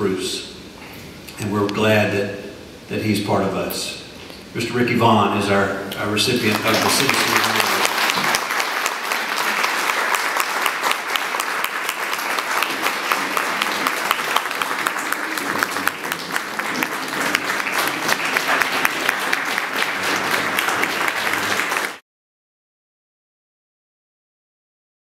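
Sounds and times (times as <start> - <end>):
audience applauding: 6.3 - 22.0.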